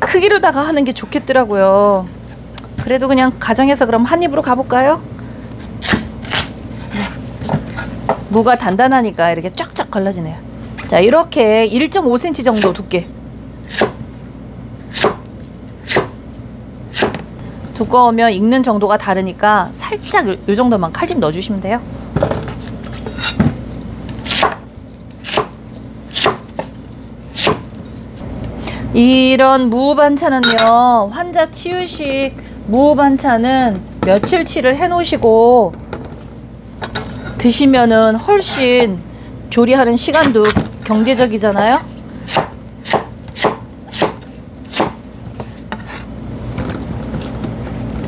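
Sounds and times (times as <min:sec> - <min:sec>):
knife chopping on wooden board: 0:05.8 - 0:06.5, 0:13.7 - 0:14.0, 0:14.9 - 0:15.2, 0:15.8 - 0:16.2, 0:16.9 - 0:17.2, 0:24.2 - 0:24.6, 0:25.2 - 0:26.7, 0:27.4 - 0:27.7, 0:42.3 - 0:45.0.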